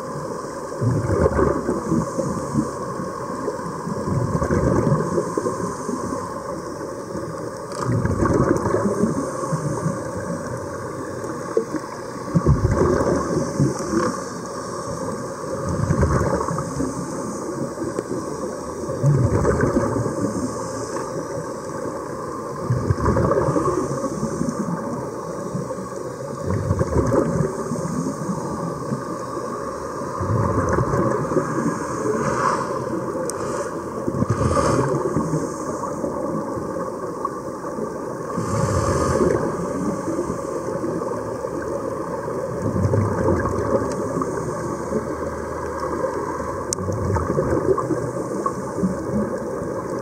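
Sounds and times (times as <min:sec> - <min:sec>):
muffled underwater noise: 0:00.0 - 0:50.0
air bubbling: 0:00.8 - 0:02.0, 0:12.3 - 0:14.1, 0:19.0 - 0:20.1, 0:26.5 - 0:27.6, 0:30.2 - 0:35.4.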